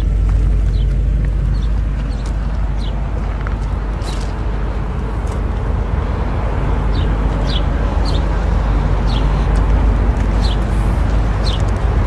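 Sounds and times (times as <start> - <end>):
bird chirping: 0.0 - 4.4, 6.9 - 9.7, 10.3 - 11.7
low outdoor rumble: 0.0 - 12.0.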